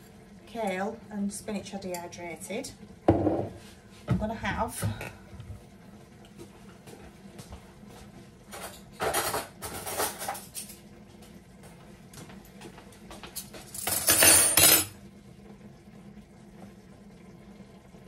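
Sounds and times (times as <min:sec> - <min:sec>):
faint steady hum: 0:00.0 - 0:18.0
utensils clattering on pot: 0:08.5 - 0:10.8, 0:13.3 - 0:15.0.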